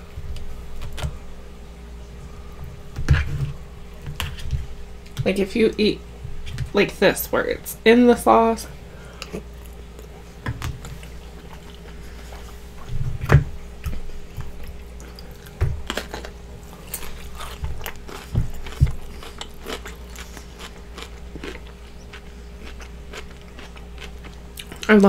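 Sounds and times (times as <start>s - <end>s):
person chewing: 9.2s - 12.9s, 13.8s - 25.0s.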